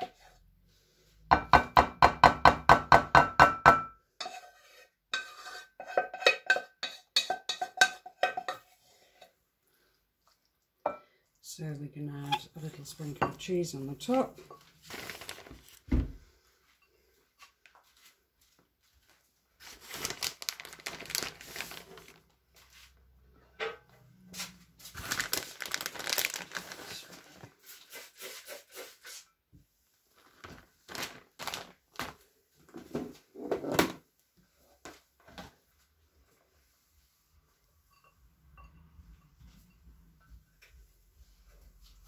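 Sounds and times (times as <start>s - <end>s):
plastic packaging crinkling: 14.8s - 15.9s, 19.6s - 22.4s, 24.9s - 27.6s, 30.1s - 32.2s.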